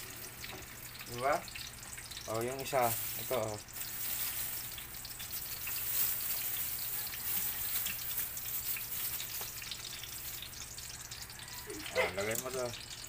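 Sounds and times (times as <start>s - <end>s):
fish sizzling in oil: 0.0s - 13.0s
oil popping and crackling: 0.0s - 13.0s.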